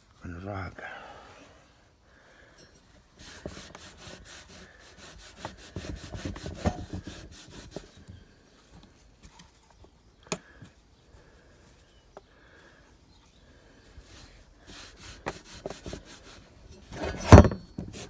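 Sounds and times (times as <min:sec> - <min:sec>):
rag rubbing on a steel frame: 0:03.1 - 0:08.1, 0:14.0 - 0:18.0.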